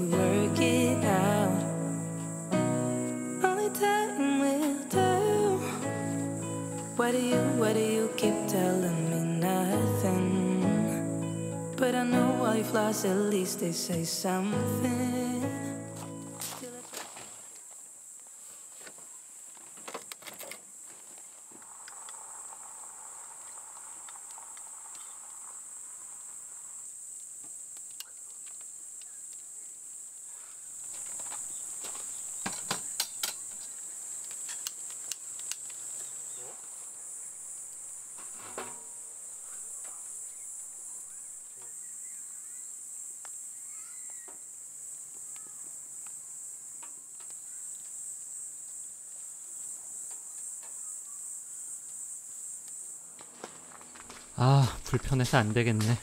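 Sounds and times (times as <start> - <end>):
insects chirring: 0.0 - 56.0
sharp clicks and snaps: 27.2 - 29.5, 34.2 - 35.8.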